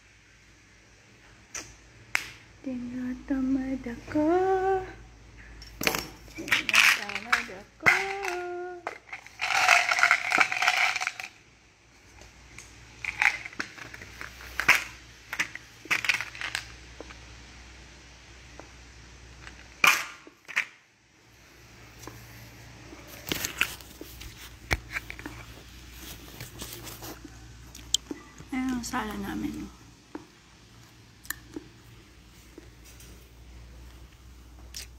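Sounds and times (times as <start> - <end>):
rustling: 21.9 - 28.0.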